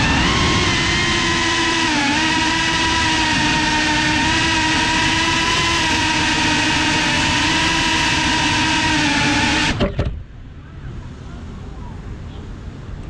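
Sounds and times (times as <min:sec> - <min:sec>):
drone propellers whining: 0:00.0 - 0:10.6
short bump: 0:09.7 - 0:10.3.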